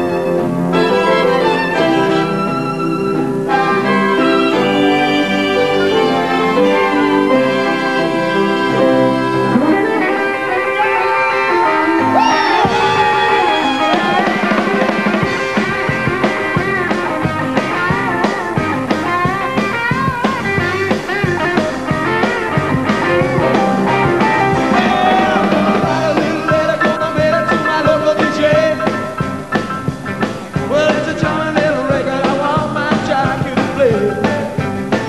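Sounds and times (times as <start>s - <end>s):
wind instruments: 0.0s - 16.0s
cello chords: 0.0s - 27.0s
electric guitar: 0.0s - 35.0s
rock drum beat: 8.8s - 35.0s.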